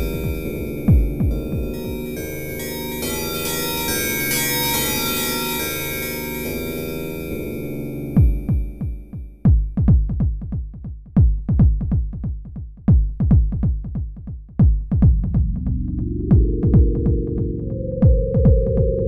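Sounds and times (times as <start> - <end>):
deep electronic drum hits: 0.0 - 2.3, 8.2 - 10.5, 14.6 - 19.0
low rising drone: 0.0 - 8.8, 15.5 - 19.0.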